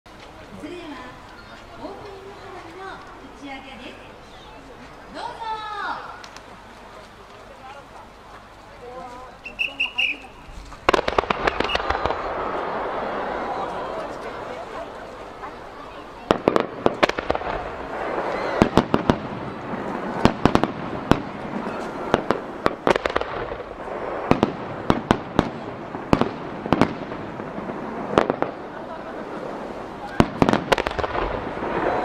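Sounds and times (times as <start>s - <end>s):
fireworks bursting with sharp bangs: 9.4s - 32.0s.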